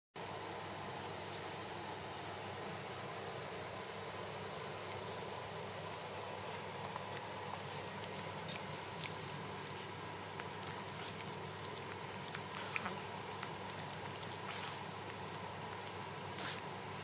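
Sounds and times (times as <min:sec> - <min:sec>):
dog licking: 0:04.8 - 0:17.0.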